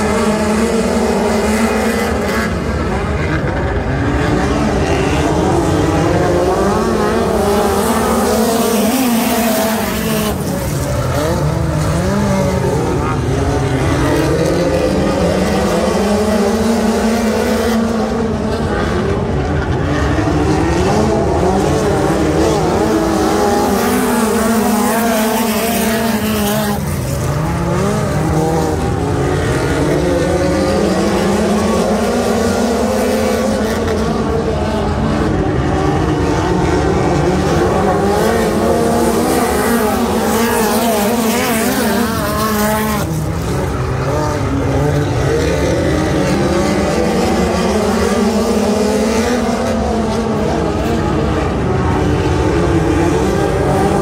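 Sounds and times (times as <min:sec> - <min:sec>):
race car engines: 0:00.0 - 0:54.0.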